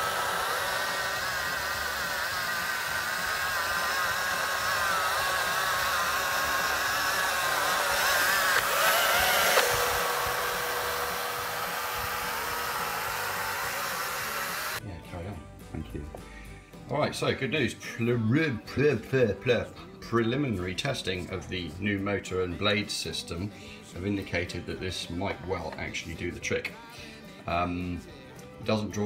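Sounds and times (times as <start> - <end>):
robot lawnmower motor whine: 0.0 - 14.8.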